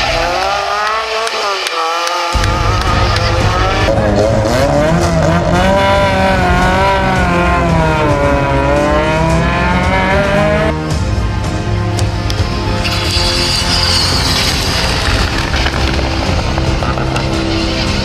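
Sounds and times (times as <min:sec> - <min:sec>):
rally car engines revving: 0:00.0 - 0:18.0
tyre squeal: 0:12.8 - 0:18.0.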